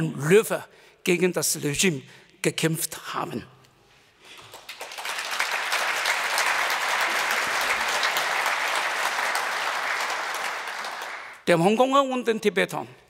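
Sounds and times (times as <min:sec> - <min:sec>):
audience applauding: 0:04.3 - 0:11.4.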